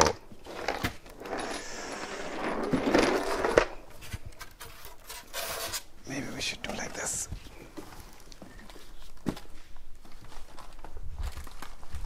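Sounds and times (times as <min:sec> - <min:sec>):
wooden lid scraping: 0:00.4 - 0:05.9.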